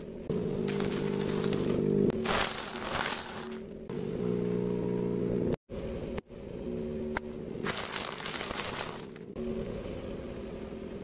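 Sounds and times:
car low rumble: 0.0 - 11.0
tyre crushing crunchy objects: 0.6 - 3.8, 7.6 - 9.3.

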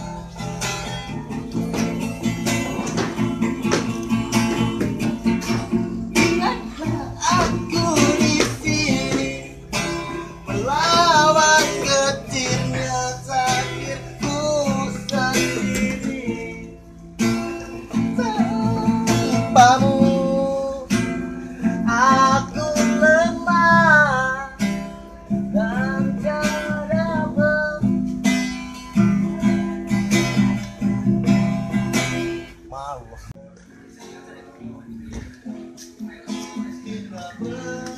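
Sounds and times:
acoustic guitar strumming: 0.0 - 37.9
person singing: 6.4 - 16.8, 17.6 - 20.9, 35.1 - 37.9.

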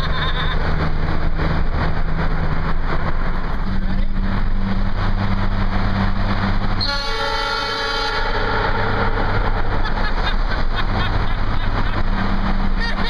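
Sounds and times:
car engine and road noise: 0.0 - 13.0
train horn chord blast: 6.8 - 9.4.

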